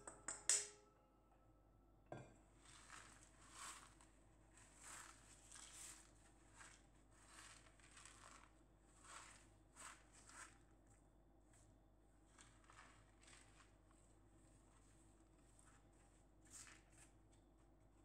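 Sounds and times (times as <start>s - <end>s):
spoon clinking on steel bowl: 0.0s - 0.8s
granola rustling on tray: 2.6s - 17.3s.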